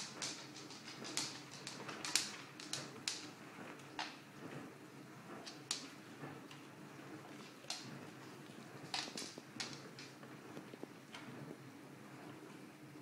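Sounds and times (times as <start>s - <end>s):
rats feeding clicks and taps: 0.0s - 4.2s, 5.4s - 6.6s, 7.3s - 11.3s.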